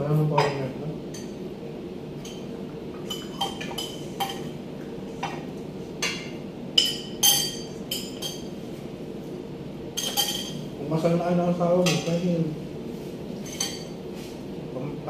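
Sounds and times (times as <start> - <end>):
steady low hum: 0.0 - 15.0
cutlery clinking on plates: 10.0 - 10.6.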